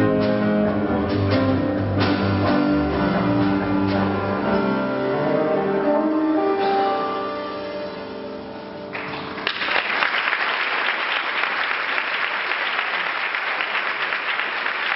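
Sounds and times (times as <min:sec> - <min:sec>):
song's held chord: 0:00.0 - 0:09.4
audience applauding: 0:08.9 - 0:14.9.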